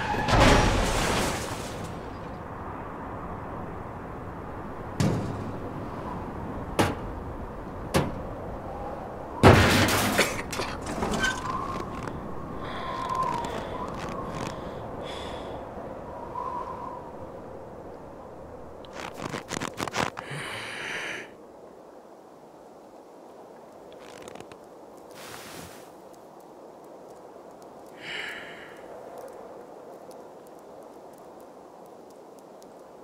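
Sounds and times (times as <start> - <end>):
crackling: 10.5 - 14.8, 18.6 - 20.3, 23.7 - 33.0.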